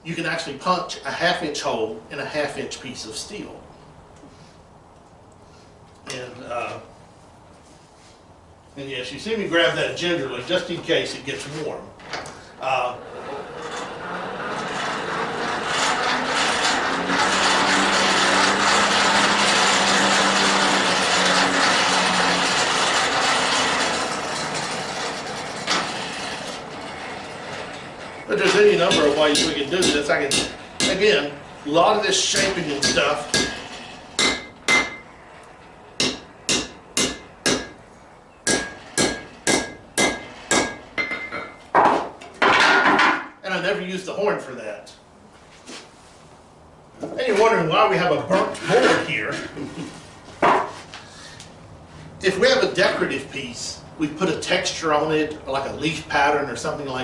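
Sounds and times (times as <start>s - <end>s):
forge blower rushing air: 11.1s - 41.5s
hammer striking steel on anvil: 28.9s - 31.0s, 32.4s - 35.0s, 36.0s - 37.8s, 38.4s - 41.6s.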